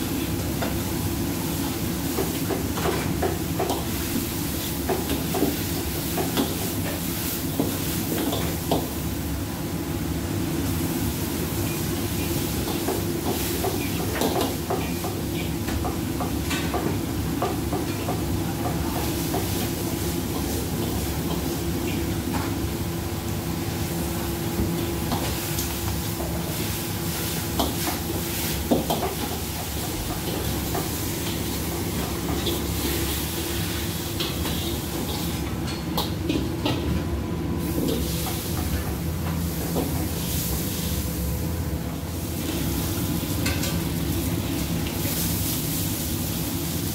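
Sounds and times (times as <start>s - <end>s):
stir-fry sizzling: 0.0s - 46.9s.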